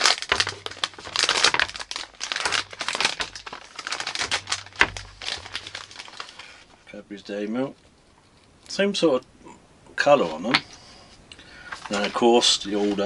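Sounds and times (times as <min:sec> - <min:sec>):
wrapper crinkling: 0:00.0 - 0:06.8, 0:11.7 - 0:13.0.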